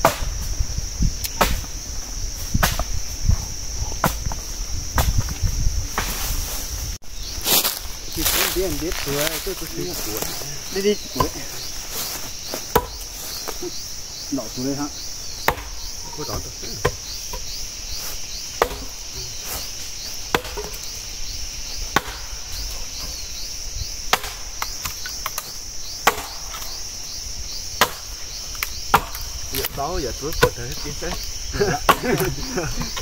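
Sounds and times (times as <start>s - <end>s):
axe chopping firewood: 0.0s - 0.4s, 1.3s - 1.7s, 2.6s - 3.0s, 4.0s - 5.3s, 11.2s - 11.5s, 12.5s - 13.1s, 15.4s - 15.8s, 16.7s - 17.4s, 18.6s - 19.0s, 20.3s - 20.8s, 21.9s - 22.4s, 24.1s - 26.8s, 27.8s - 33.0s
insects buzzing: 0.0s - 33.0s.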